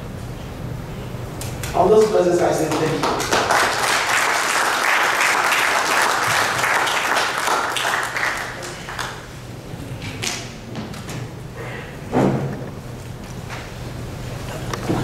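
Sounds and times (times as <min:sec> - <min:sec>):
audience applauding: 0:02.0 - 0:09.3.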